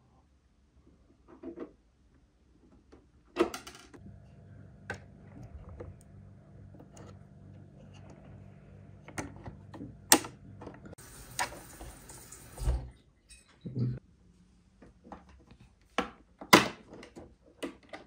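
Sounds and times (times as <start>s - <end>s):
low steady hum: 3.7s - 15.2s.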